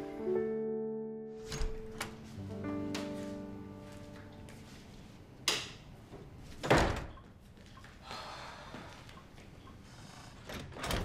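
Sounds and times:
door shutting with dull thud: 1.4s - 2.2s, 6.6s - 7.1s.

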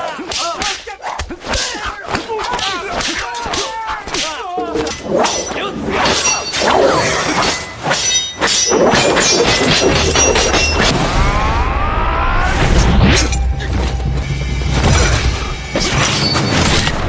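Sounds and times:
shouts: 0.0s - 4.9s
sword blades clashing: 0.0s - 11.0s
low rumble: 11.0s - 15.8s.

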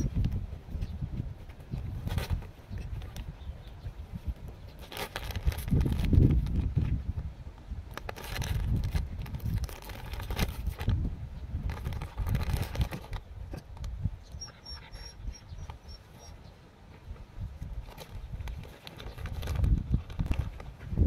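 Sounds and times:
plastic bag crinkling: 4.8s - 6.7s, 7.9s - 11.0s, 11.6s - 13.3s, 17.8s - 20.7s.

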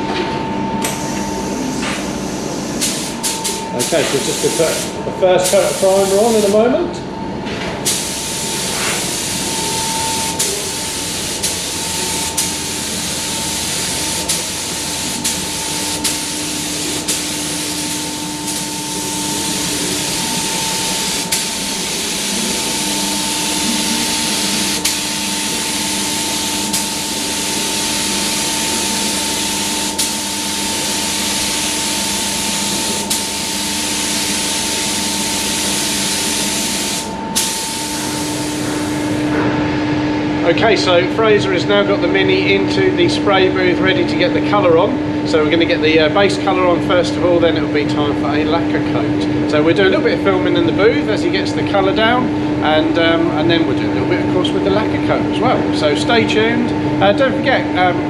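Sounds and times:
steady hum: 0.0s - 58.0s
spray gun hissing: 0.8s - 6.7s, 7.8s - 39.2s.

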